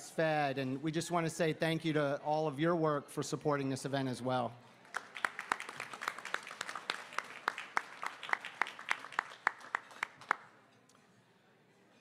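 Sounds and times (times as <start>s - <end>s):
audience applauding: 4.9s - 10.5s
person clapping close to microphone: 4.9s - 10.5s.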